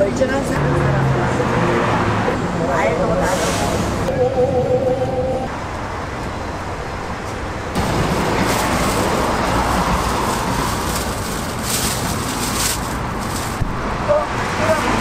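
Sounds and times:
street traffic noise: 0.0s - 15.0s
plastic bag crinkling: 8.4s - 13.6s.

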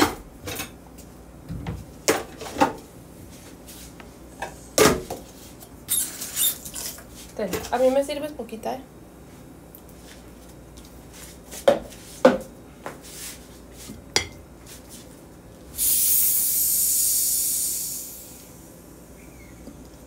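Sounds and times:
loud steady hiss: 15.7s - 19.5s.

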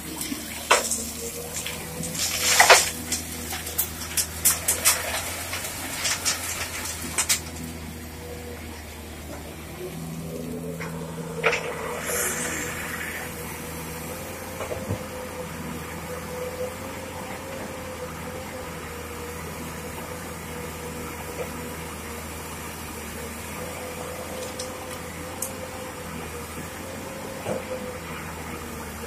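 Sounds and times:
diesel engine idling: 0.0s - 24.3s
short hiss: 11.6s - 13.6s.

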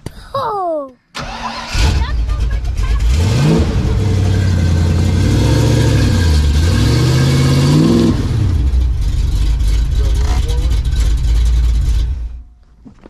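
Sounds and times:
car engine revving: 1.2s - 12.5s.

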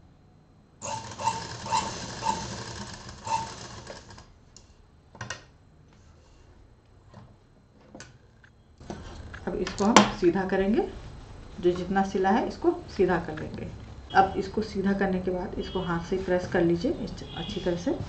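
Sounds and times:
sewing machine stitching: 0.8s - 4.3s.

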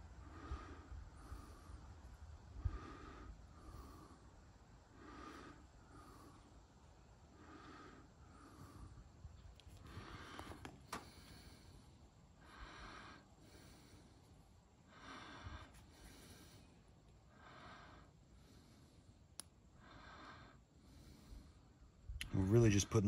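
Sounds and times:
slow soft breathing: 0.0s - 22.2s
faint click: 19.3s - 19.6s.

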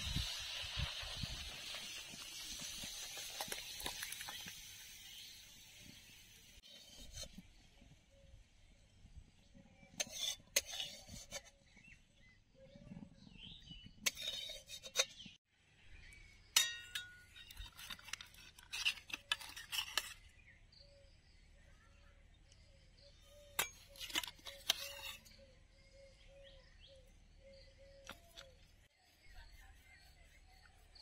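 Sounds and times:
ladle clinking against metal pot: 16.6s - 17.6s.

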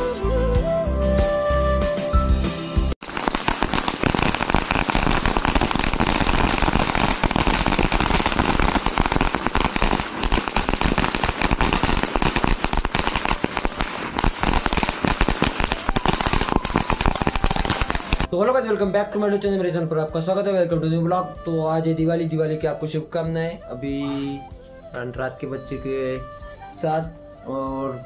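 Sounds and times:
firecrackers banging and crackling: 3.0s - 18.4s.

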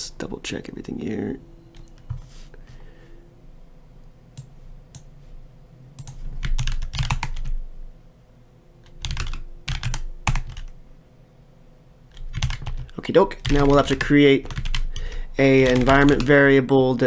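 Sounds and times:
typing on computer keyboard: 6.0s - 7.6s, 8.8s - 10.8s, 12.1s - 16.4s.

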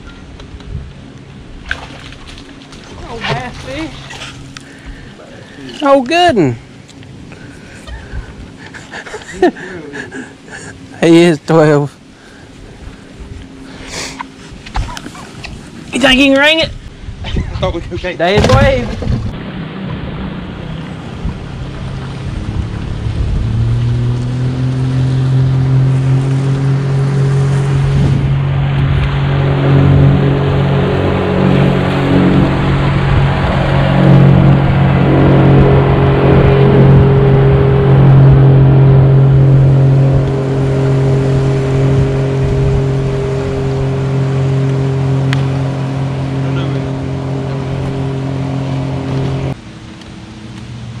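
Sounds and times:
boat motor humming: 0.0s - 17.5s, 18.2s - 51.0s
wind noise on microphone: 14.6s - 45.7s.

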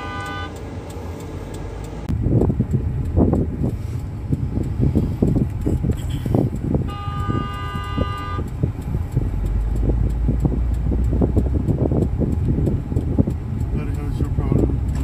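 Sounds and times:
car horn blast: 0.0s - 0.6s, 6.8s - 8.5s
car rumbling moving off: 0.0s - 15.0s.

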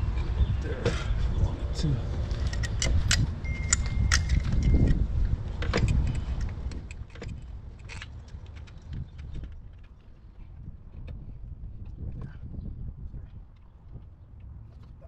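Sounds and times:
steady low rumble: 0.0s - 14.8s
clinks of tools and engine parts: 2.2s - 10.5s.

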